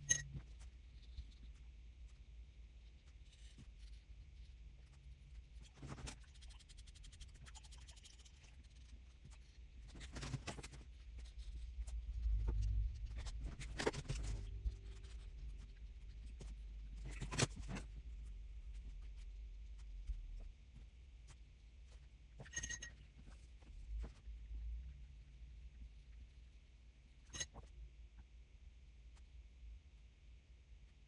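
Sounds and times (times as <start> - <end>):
low rumble: 11.0 - 20.5.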